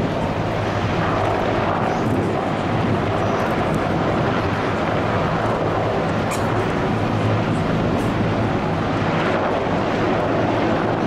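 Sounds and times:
helicopters flying low: 0:00.0 - 0:11.0
wind buffeting microphone: 0:00.0 - 0:11.0.

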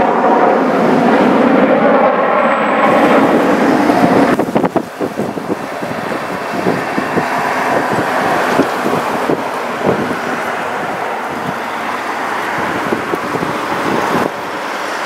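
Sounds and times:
jet engine rumble: 0:00.0 - 0:15.0.

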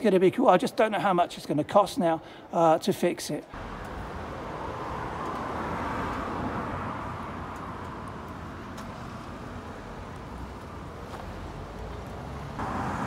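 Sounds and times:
vehicle passing: 0:03.6 - 0:13.0.

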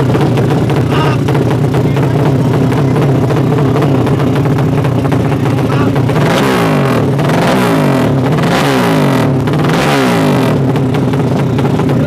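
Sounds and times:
motorcycle engine throttle blips: 0:00.0 - 0:12.0.

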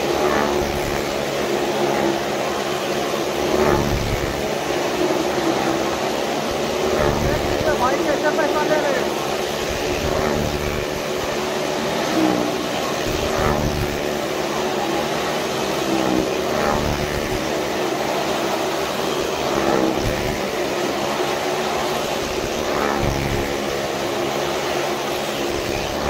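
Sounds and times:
motorcycle engines running hard: 0:00.0 - 0:26.0.

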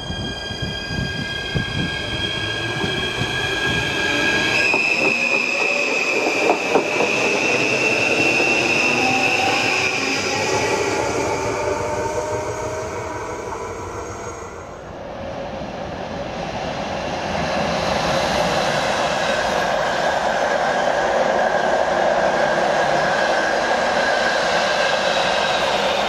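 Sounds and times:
passing train rolling rumble: 0:00.0 - 0:26.0
electric train running: 0:00.1 - 0:14.6.

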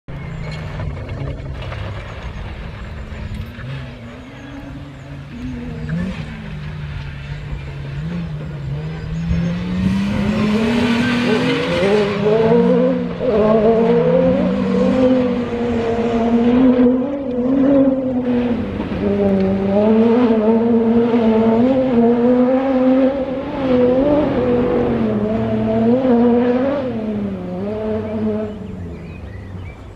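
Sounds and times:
engine revving hard: 0:07.9 - 0:29.0.

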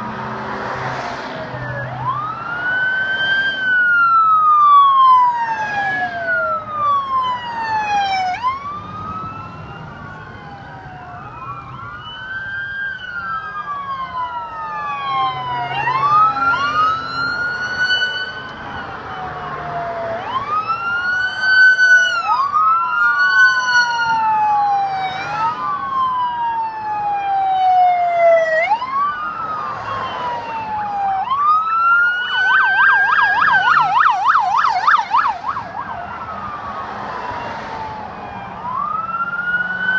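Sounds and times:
sirens wailing: 0:00.0 - 0:39.9
siren fast yelp: 0:01.6 - 0:39.9.

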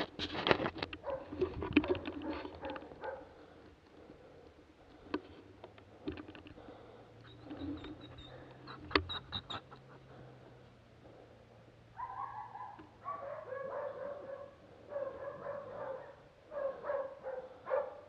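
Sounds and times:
dog barking: 0:01.0 - 0:03.4, 0:12.0 - 0:18.0.

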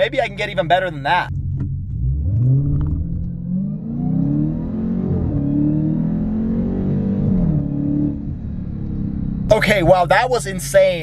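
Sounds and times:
car engine at full throttle: 0:00.0 - 0:10.9.

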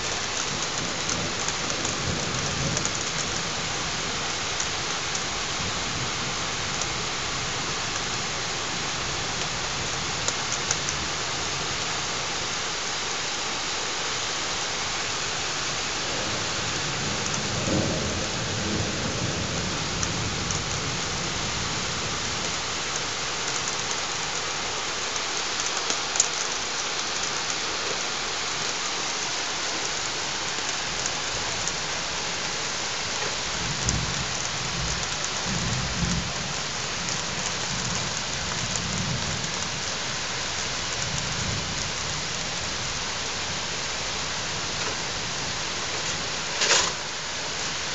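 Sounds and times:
thunder rumbling: 0:00.0 - 0:11.2, 0:15.9 - 0:23.8, 0:33.3 - 0:46.5
raindrops ticking: 0:00.0 - 0:12.5, 0:15.4 - 0:47.9
rain hissing: 0:00.0 - 0:47.9.

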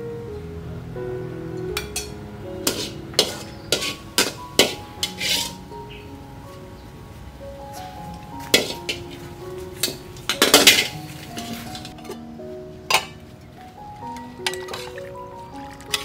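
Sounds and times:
soft background music: 0:00.0 - 0:16.0
metal spatula scraping wok: 0:01.8 - 0:05.8, 0:08.5 - 0:12.3, 0:14.4 - 0:16.0.

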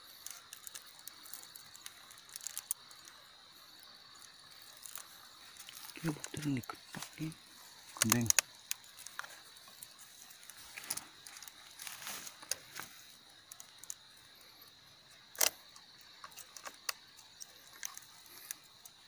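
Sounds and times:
roots cracking and scraping in soil: 0:00.2 - 0:14.1.

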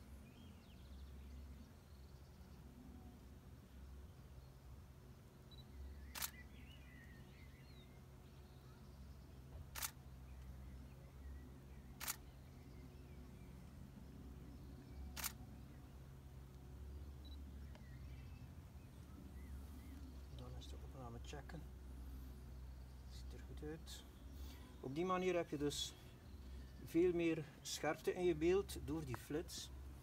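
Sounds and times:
low background rumble: 0:00.2 - 0:30.0
camera shutter clicks: 0:06.1 - 0:06.5, 0:09.7 - 0:10.0, 0:12.0 - 0:12.4, 0:15.1 - 0:15.4.

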